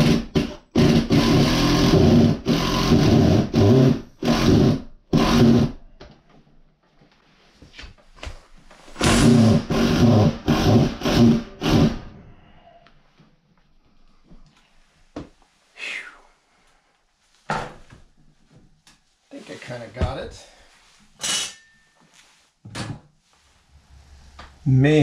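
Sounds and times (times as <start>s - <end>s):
cordless drill driving screws: 0.0s - 5.8s.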